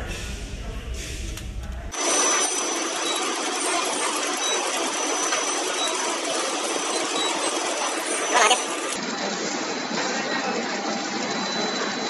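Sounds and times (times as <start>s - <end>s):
thin high whine: 1.9s - 9.0s
machinery running: 1.9s - 12.0s.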